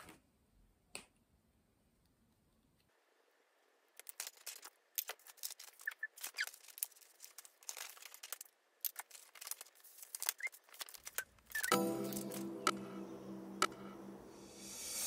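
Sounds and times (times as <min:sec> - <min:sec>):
paper rustling: 0:04.0 - 0:12.5.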